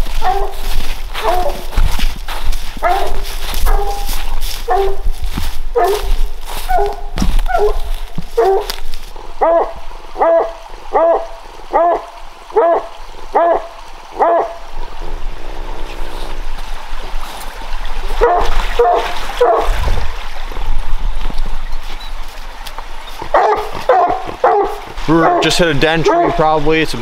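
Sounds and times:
dog barking: 0.1 - 1.7, 2.8 - 5.1, 5.7 - 8.8, 9.4 - 14.6, 18.2 - 19.7, 23.3 - 26.4.

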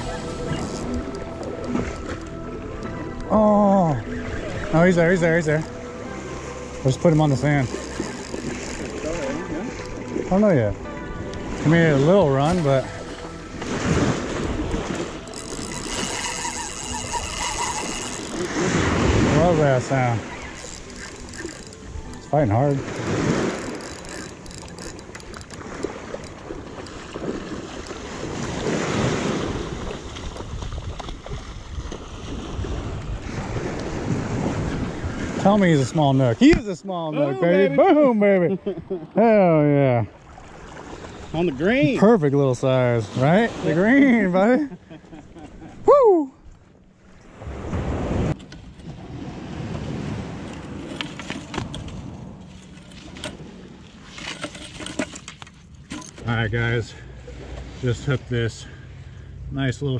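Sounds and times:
small waves washing on beach: 3.2 - 36.7, 39.8 - 44.8, 47.0 - 55.1
wind buffeting microphone: 12.8 - 35.6
landing net rustling and clicking: 15.2 - 18.5, 20.4 - 22.2, 23.4 - 27.0, 54.0 - 56.2.

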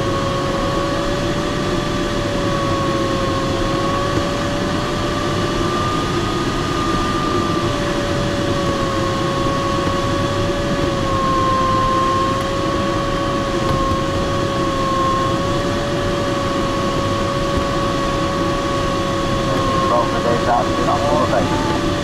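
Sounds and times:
cockpit airflow noise: 7.6 - 22.0.

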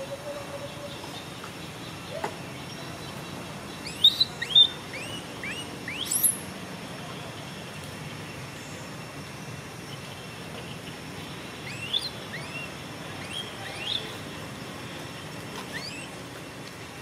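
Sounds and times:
small bird chirping: 0.5 - 6.5, 11.6 - 14.2, 15.7 - 16.2.

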